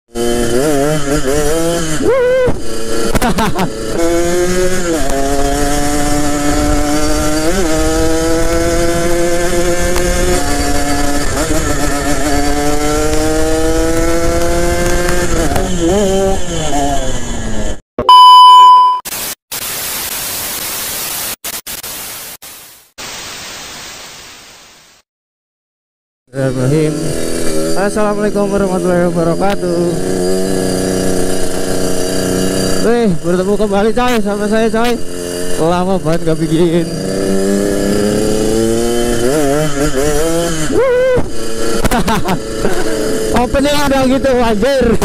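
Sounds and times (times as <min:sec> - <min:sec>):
motorcycle engine revving: 0:00.1 - 0:17.8, 0:26.3 - 0:45.0
loud electronic beep: 0:18.0 - 0:19.1
static hiss: 0:19.1 - 0:25.0.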